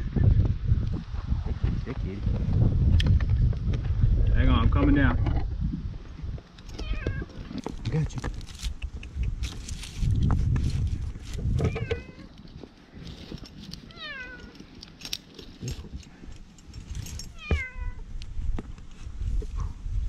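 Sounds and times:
microphone rumbling: 0.0 - 14.0
cat meowing: 6.8 - 7.3, 11.6 - 12.3, 17.3 - 18.0.

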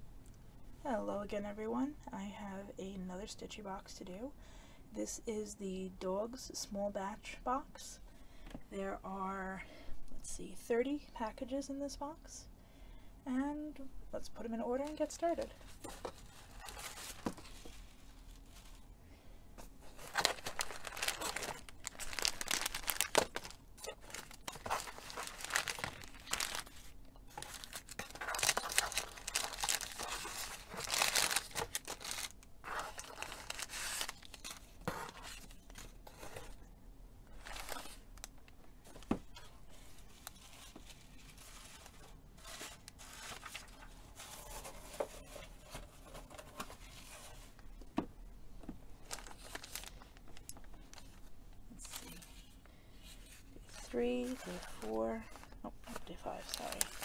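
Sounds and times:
paper rustling and crinkling: 14.8 - 18.8, 19.8 - 36.6, 37.3 - 47.6, 49.0 - 51.2, 53.0 - 57.0.

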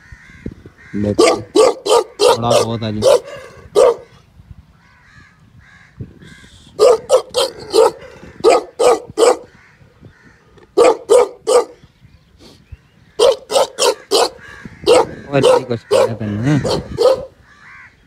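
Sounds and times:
dog barking: 1.2 - 4.1, 6.8 - 9.5, 10.8 - 11.8, 13.2 - 17.4.

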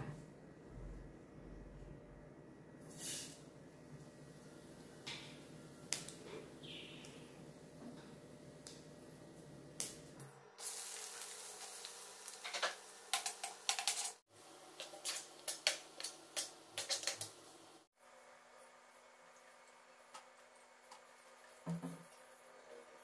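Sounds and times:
onions sizzling in oil: 10.6 - 17.8.

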